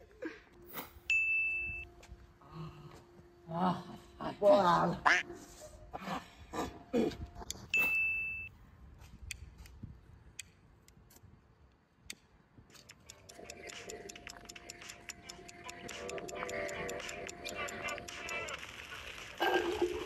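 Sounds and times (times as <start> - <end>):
music: 0.5 - 7.3, 13.2 - 20.0
short electronic beep: 1.1 - 1.9, 7.7 - 8.5
ticking clock timer: 12.8 - 18.6.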